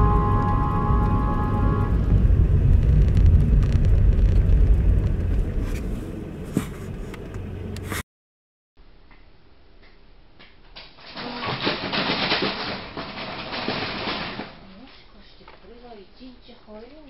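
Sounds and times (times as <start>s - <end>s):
held music tones: 0.0s - 2.2s
car engine and road rumble: 0.0s - 8.0s.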